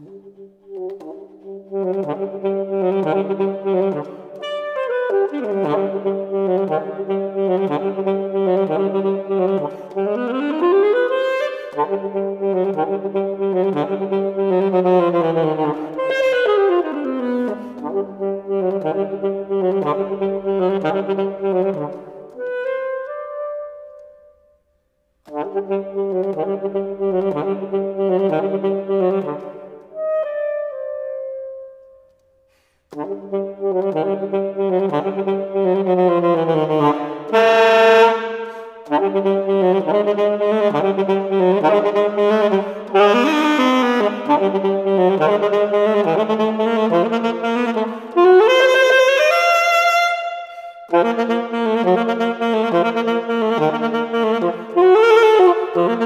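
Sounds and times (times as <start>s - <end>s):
solo alto saxophone: 0.0s - 56.0s
saxophonist breathing: 17.5s - 17.8s, 32.4s - 33.0s, 38.4s - 38.9s, 50.4s - 50.9s.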